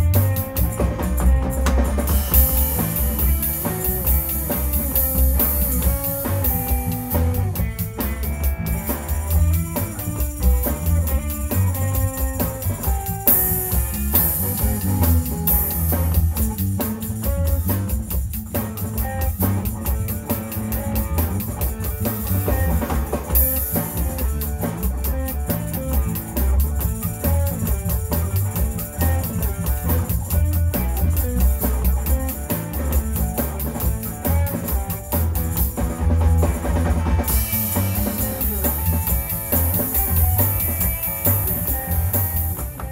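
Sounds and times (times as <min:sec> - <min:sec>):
electric blues band playing: 0:00.0 - 0:42.9
cymbals: 0:02.0 - 0:30.2, 0:37.2 - 0:42.9.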